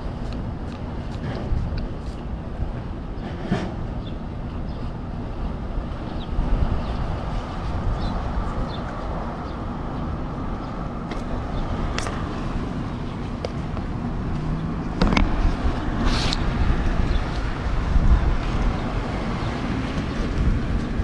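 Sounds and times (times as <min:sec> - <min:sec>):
low outdoor rumble: 0:00.0 - 0:21.0
rustling scrape: 0:16.0 - 0:16.4.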